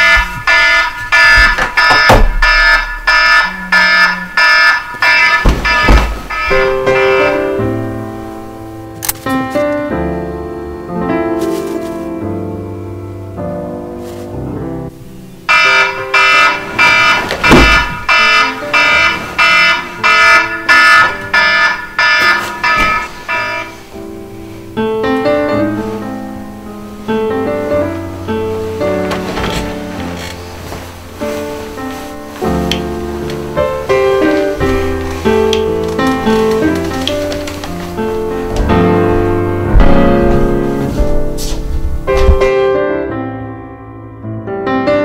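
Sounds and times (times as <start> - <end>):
electronic alarm beeping: 0.0 - 7.4, 15.5 - 23.7
sharp knocks: 0.0 - 7.4, 15.5 - 23.7, 38.4 - 42.5
thump: 1.4 - 2.9, 5.4 - 6.8, 17.2 - 18.1, 39.6 - 42.5
soft piano music: 5.4 - 45.0.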